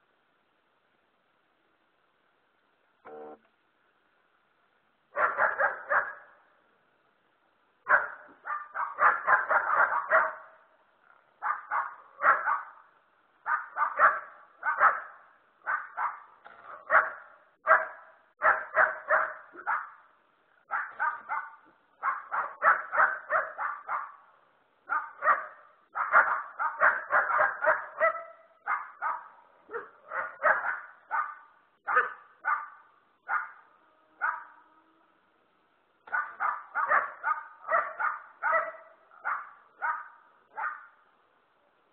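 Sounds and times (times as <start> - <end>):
dog barking: 5.2 - 6.4, 7.8 - 10.7, 11.4 - 24.3, 24.9 - 34.7, 36.1 - 41.0.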